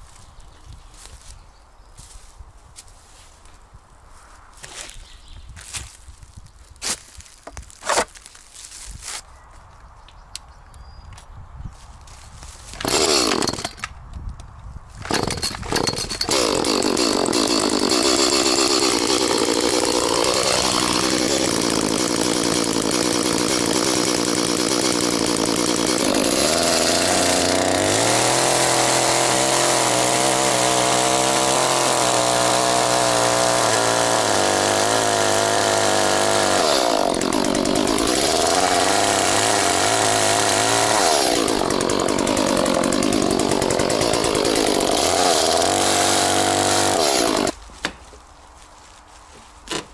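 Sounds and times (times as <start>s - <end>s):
chainsaw engine running: 12.7s - 13.9s, 15.0s - 47.6s.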